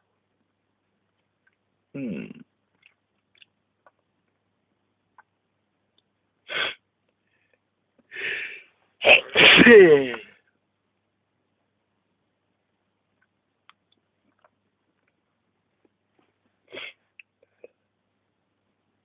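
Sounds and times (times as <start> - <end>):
person sneezing loudly: 6.5 - 6.8, 9.0 - 10.3
person sniffing: 6.5 - 6.8, 8.1 - 10.1, 16.7 - 17.0
drawn-in breath: 8.1 - 8.8.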